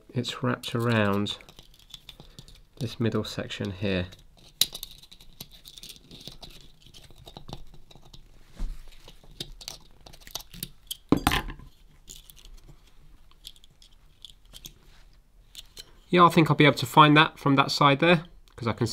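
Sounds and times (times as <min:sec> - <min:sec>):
small metal parts clicking: 0:00.6 - 0:02.9, 0:03.6 - 0:08.2, 0:12.0 - 0:14.8
metal parts clacking: 0:04.1 - 0:07.4, 0:09.6 - 0:12.6, 0:13.3 - 0:14.8.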